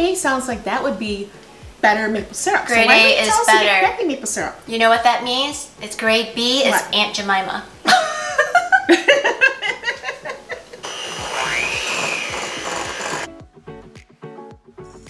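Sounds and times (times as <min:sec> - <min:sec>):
background music with a beat: 0:00.0 - 0:02.3, 0:11.2 - 0:15.0
music: 0:00.0 - 0:15.0
electric hand mixer whirring: 0:10.8 - 0:13.3.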